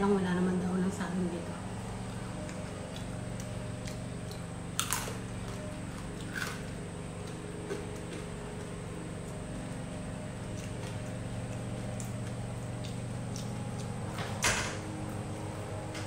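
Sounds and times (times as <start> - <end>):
steady low hum: 0.0 - 16.0
chewing: 2.0 - 9.7, 10.4 - 14.2.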